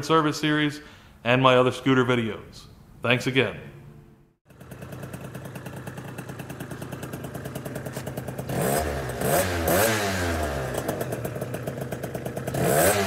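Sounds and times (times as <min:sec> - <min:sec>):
motorcycle engine idling and revving: 0:04.4 - 0:13.0.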